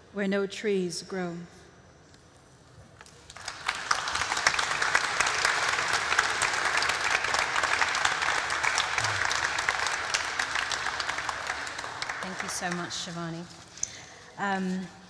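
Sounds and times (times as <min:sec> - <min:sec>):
audience applauding: 0:03.1 - 0:13.2.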